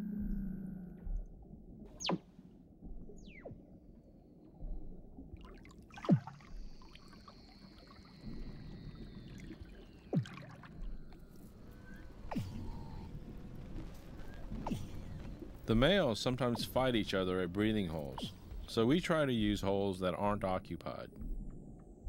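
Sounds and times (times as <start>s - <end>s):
low underwater rumble: 2.6s - 18.8s.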